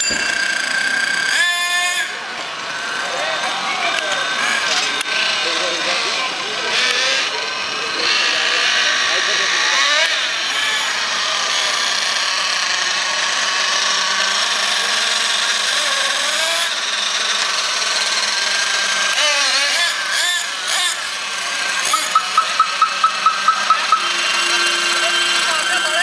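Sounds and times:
small engines revving high buzz: 0.0 - 26.0
short high beeps: 21.9 - 25.4.

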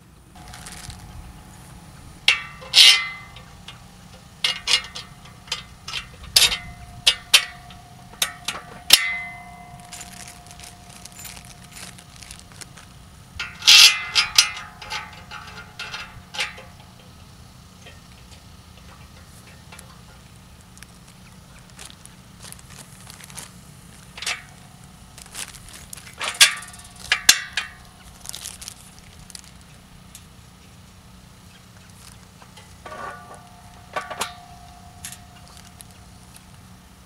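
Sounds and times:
metal parts clanking: 0.4 - 1.2, 2.2 - 16.9, 21.7 - 29.7, 32.0 - 36.0
sharp metallic knocks: 2.3 - 11.9.

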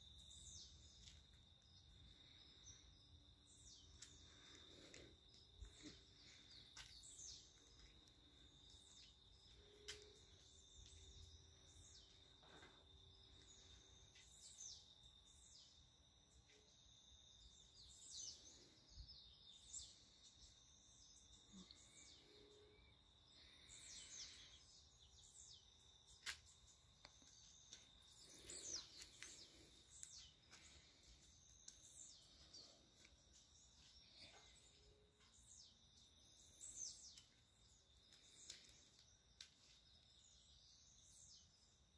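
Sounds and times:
small birds chirping: 0.0 - 41.9.

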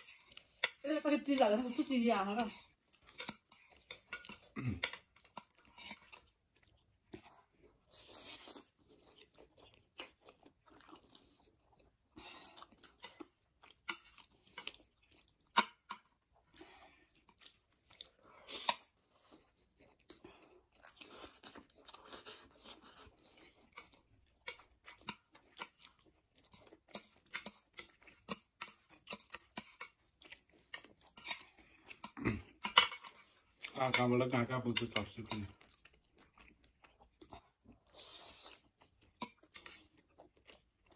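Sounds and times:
people slurping noodles: 4.5 - 5.1, 32.0 - 32.6.

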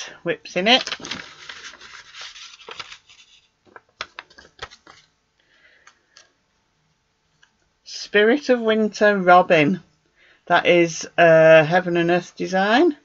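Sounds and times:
paper rustling: 0.6 - 5.2.

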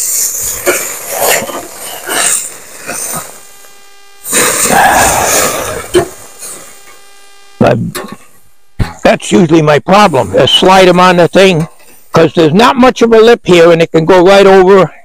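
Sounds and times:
rushing noise: 0.0 - 7.7.

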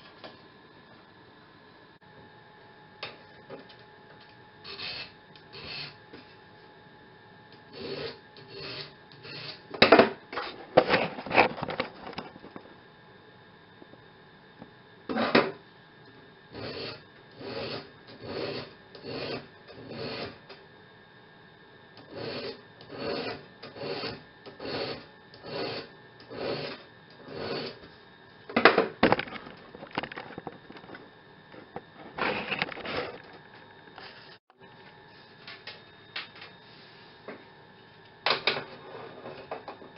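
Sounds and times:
file rasping on steel: 7.7 - 9.6, 16.5 - 20.4, 22.1 - 27.8.

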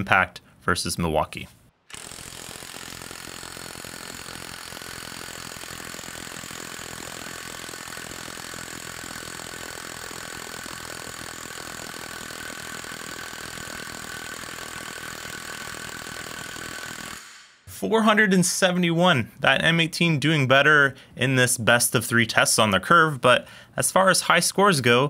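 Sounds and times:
motor whine: 1.9 - 17.2
impact wrench rattling: 1.9 - 17.4.

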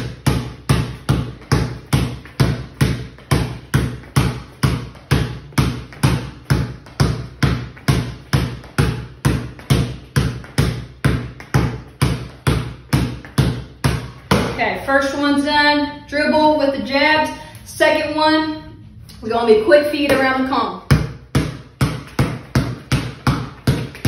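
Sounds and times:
basketball bouncing on concrete: 0.0 - 14.8, 20.0 - 24.0.

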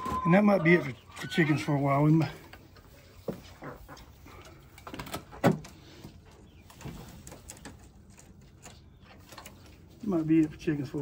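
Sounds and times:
soft chicken calls: 0.0 - 4.5
chickens clucking: 0.0 - 11.0.

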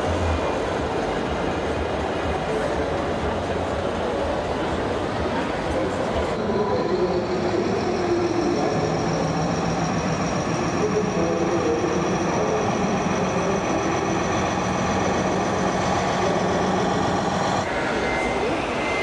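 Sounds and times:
engine-like drone: 0.0 - 19.0
exhibition hall din: 0.0 - 19.0
thin high whine: 5.2 - 19.0.

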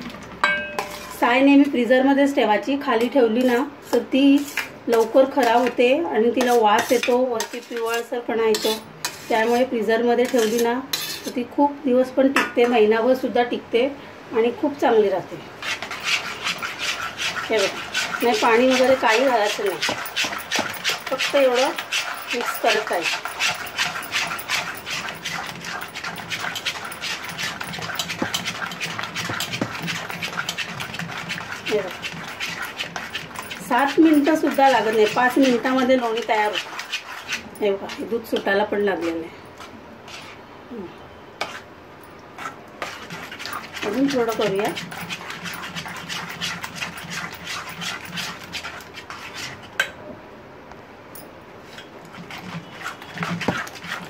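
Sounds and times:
spoon beating cream in steel bowl: 0.0 - 2.0, 2.8 - 11.4, 15.6 - 40.4, 41.4 - 41.6, 42.4 - 49.9, 51.6 - 54.0
spoon clinking against bowl: 0.4 - 1.1.

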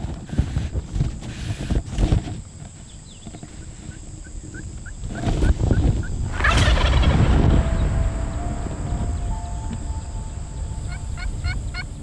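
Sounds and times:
low wind rumble: 4.4 - 12.0.

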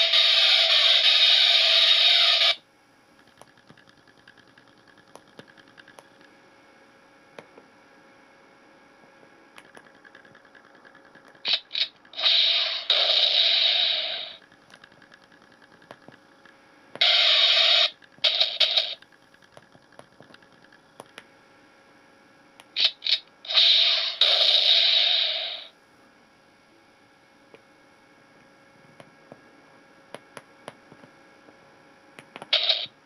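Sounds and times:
electronic gun firing effects: 0.0 - 2.6, 11.4 - 14.4, 17.0 - 19.0, 22.8 - 25.7, 32.5 - 33.0
faint electrical hum: 0.0 - 33.0.

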